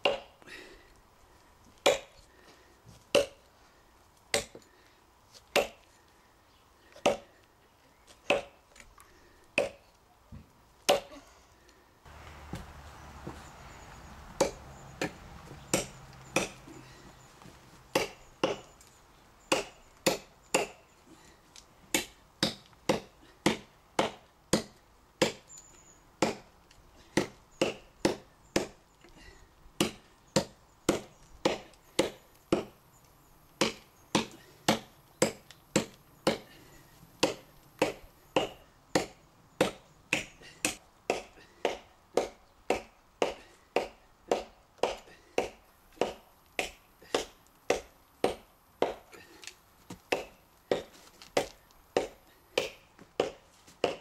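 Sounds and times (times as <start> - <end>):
tomahawk chopping log: 14.4 - 16.7, 17.9 - 18.6, 19.5 - 20.8, 21.9 - 25.5, 26.2 - 26.5, 27.2 - 28.8, 29.8 - 32.8, 33.6 - 36.5, 37.2 - 49.1, 49.9 - 54.0.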